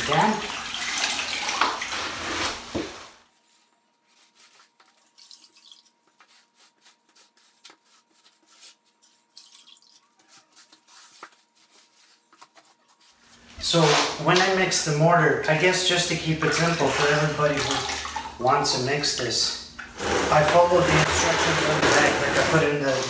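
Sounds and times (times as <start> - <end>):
water splashing into bucket: 0.0 - 2.6, 15.4 - 19.2, 19.8 - 22.7
sponge dabbing on wood floor: 1.9 - 5.2, 6.0 - 9.2, 10.0 - 14.6.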